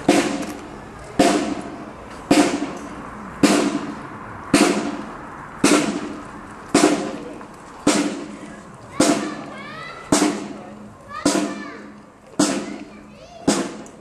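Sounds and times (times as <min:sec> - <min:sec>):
marching band drums: 0:00.0 - 0:14.0.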